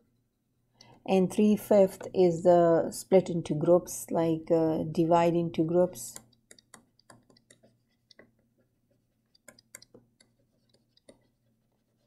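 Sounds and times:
stylus tapping on touchscreen: 0:06.1 - 0:08.5.

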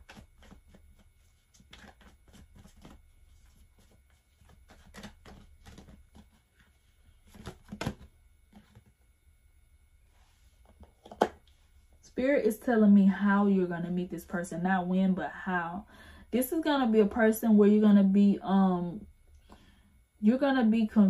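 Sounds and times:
cards being shuffled: 0:00.0 - 0:08.9.

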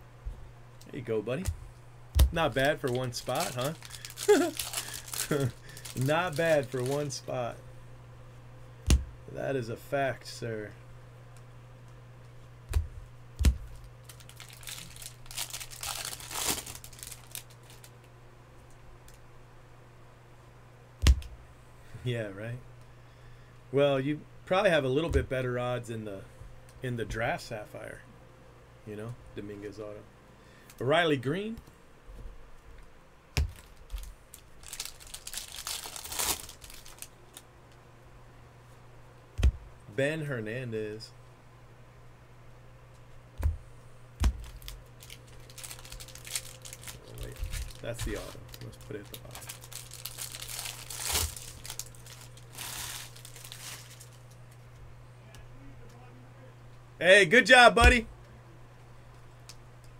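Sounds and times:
dull thumps: 0:01.4 - 0:02.4, 0:08.8 - 0:09.2, 0:12.7 - 0:13.8, 0:21.0 - 0:21.4, 0:39.4 - 0:39.8, 0:43.4 - 0:44.7
foil wrapper crinkling and tearing: 0:02.3 - 0:07.3, 0:13.6 - 0:18.0, 0:33.4 - 0:37.4, 0:44.2 - 0:54.5.

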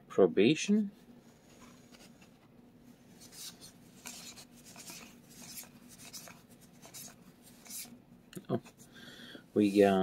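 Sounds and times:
cards sliding soft swishes: 0:01.0 - 0:08.0.

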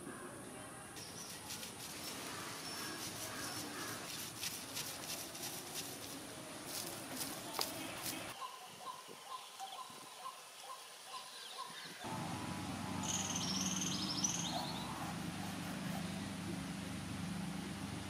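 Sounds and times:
steady low hum: 0:12.1 - 0:18.0
high bird chirps: 0:13.0 - 0:15.0.

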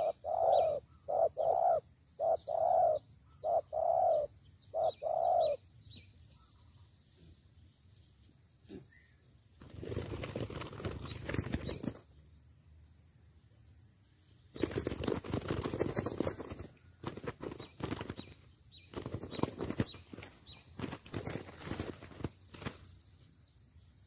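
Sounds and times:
dove wings flapping against ground: 0:09.6 - 0:12.1, 0:14.5 - 0:23.1.

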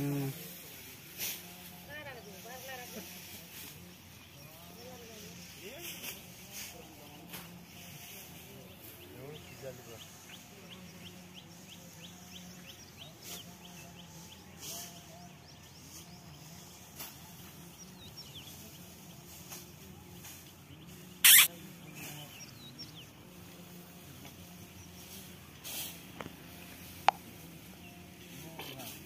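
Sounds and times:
faint rapid high chirps: 0:21.2 - 0:21.5.

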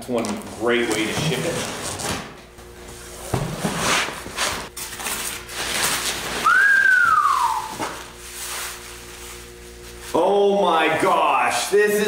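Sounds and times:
cardboard and packing rustling: 0:03.2 - 0:07.0.

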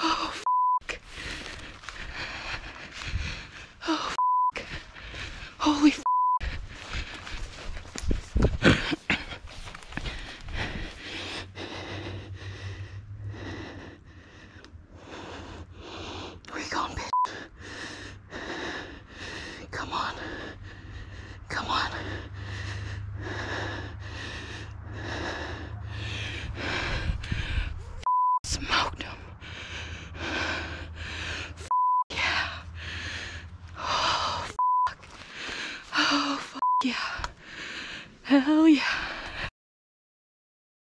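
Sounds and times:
person breathing heavily: 0:00.0 - 0:39.5
censor beeps: 0:00.4 - 0:00.8, 0:04.2 - 0:04.6, 0:06.0 - 0:06.4, 0:28.1 - 0:28.4, 0:31.7 - 0:32.0, 0:34.6 - 0:35.0.

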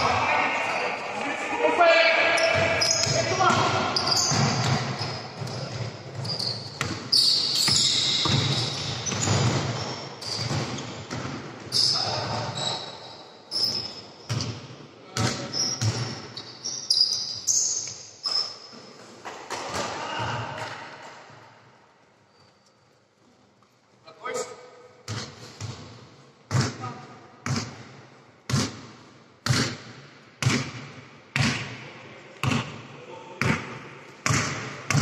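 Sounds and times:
basketball bouncing on gym floor: 0:02.4 - 0:12.6, 0:13.7 - 0:16.3, 0:25.0 - 0:26.8, 0:27.4 - 0:31.8, 0:32.4 - 0:32.8, 0:33.4 - 0:35.0.

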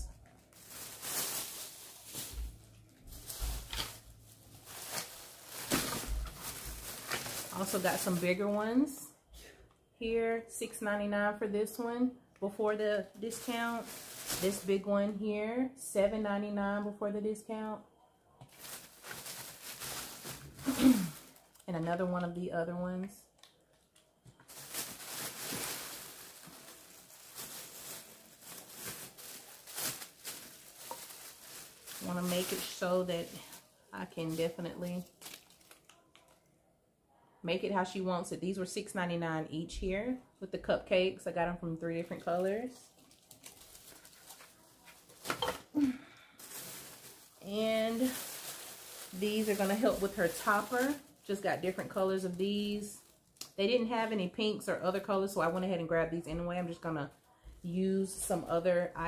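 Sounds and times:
decorations rustling: 0:00.0 - 0:09.1, 0:11.8 - 0:15.2, 0:18.3 - 0:36.5, 0:41.8 - 0:54.3.

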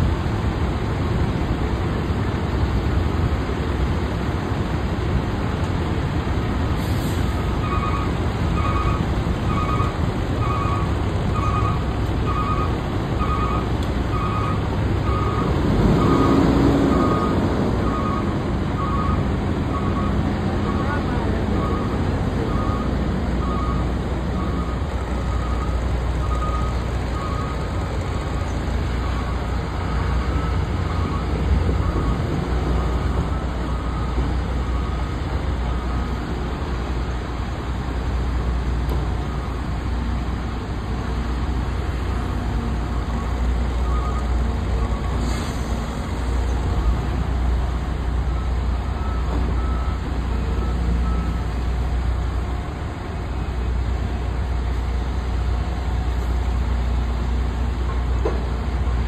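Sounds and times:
excavator diesel engine rumbling: 0:00.0 - 0:59.0.

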